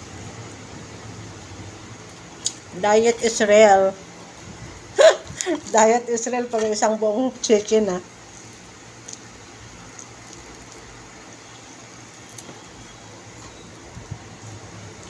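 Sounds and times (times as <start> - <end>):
electric fan humming: 0.0 - 15.0
faint clicks of chewing food: 2.0 - 2.6, 8.3 - 10.9.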